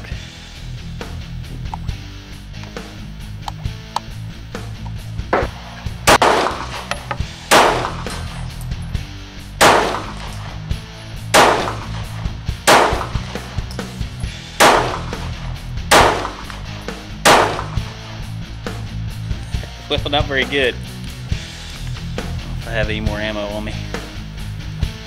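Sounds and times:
pistol shots: 5.3s - 8.4s, 9.6s - 10.6s, 11.3s - 13.8s, 14.6s - 18.0s.

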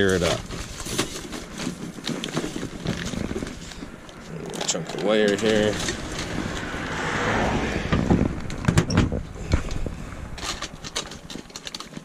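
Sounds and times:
rustling: 0.0s - 7.5s.

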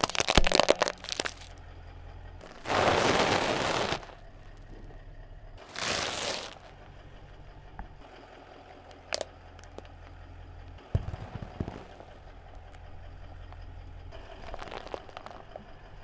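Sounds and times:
tyre crunching small objects: 0.0s - 1.6s, 2.4s - 4.8s, 5.6s - 6.7s, 8.9s - 9.9s, 11.0s - 12.2s, 14.2s - 15.6s
car engine idling: 0.0s - 16.0s.

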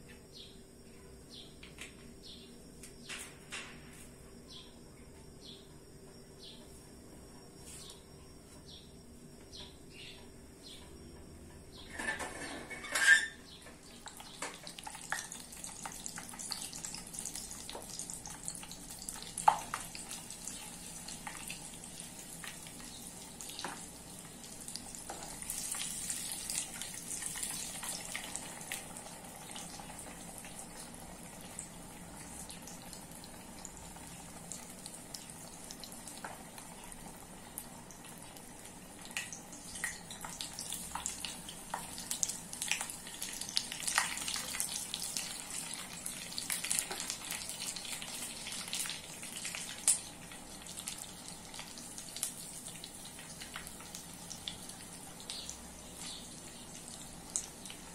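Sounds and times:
dumplings sizzling in hot oil: 12.7s - 57.9s.

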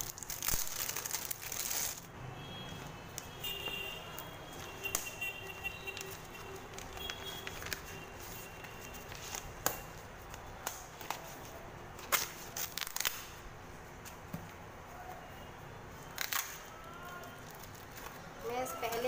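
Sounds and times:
wrapping crinkling and snapping: 0.0s - 2.1s, 4.1s - 13.4s, 16.1s - 19.0s.

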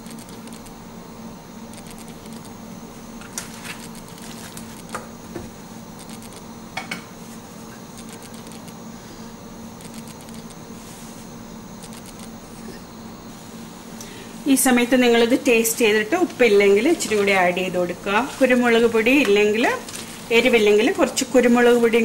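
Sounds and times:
wooden spatula scraping a pan: 16.8s - 17.5s.

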